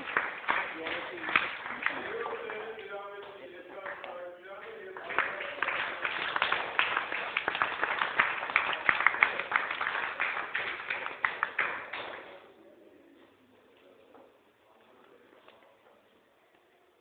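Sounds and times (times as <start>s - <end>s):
people clapping: 0.0s - 12.5s.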